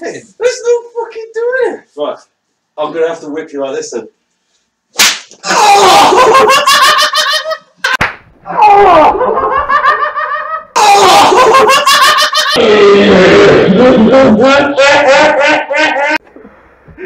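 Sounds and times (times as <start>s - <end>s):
whip stroke: 4.9s - 5.4s
man crying out: 5.4s - 6.4s, 8.5s - 9.4s, 10.7s - 11.8s, 12.6s - 14.9s
people laughing: 5.4s - 8.0s, 8.6s - 12.6s, 13.5s - 16.2s.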